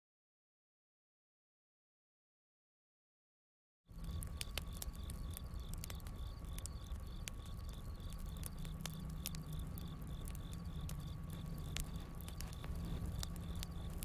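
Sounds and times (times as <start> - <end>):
campfire crackling and popping: 3.9 - 14.0
crickets chirping: 3.9 - 14.0.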